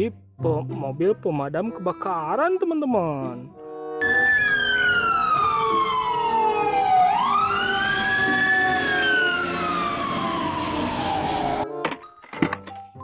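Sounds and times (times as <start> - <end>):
fire truck siren wailing: 4.0 - 11.7
engine and road noise: 4.0 - 12.7.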